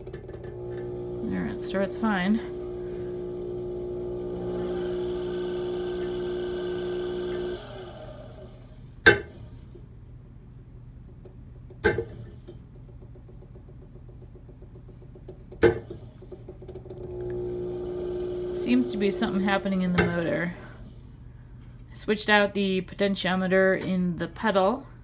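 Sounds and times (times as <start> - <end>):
pottery wheel motor humming: 0.0 - 10.2, 11.0 - 23.0.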